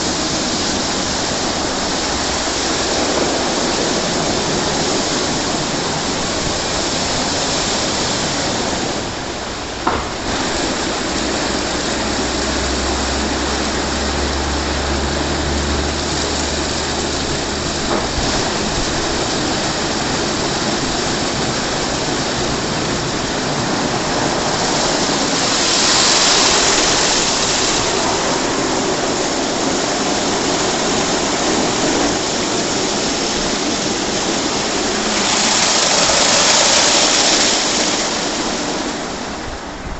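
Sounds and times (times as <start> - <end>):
car wash water spraying: 0.0 - 39.9
knock: 9.8 - 10.4.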